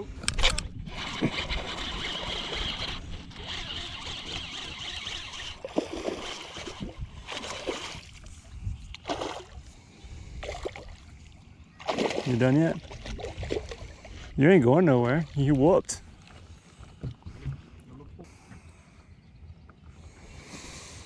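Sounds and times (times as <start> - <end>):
fishing reel whirring: 0.3 - 8.1.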